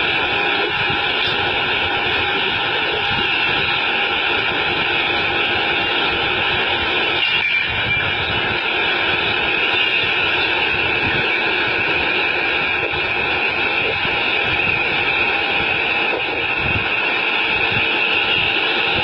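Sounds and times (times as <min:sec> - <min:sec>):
machine running hum: 0:00.0 - 0:19.0.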